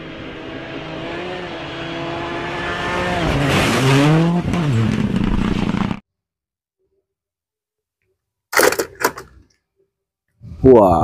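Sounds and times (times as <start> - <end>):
rally car engine at high revs: 0.0 - 6.0.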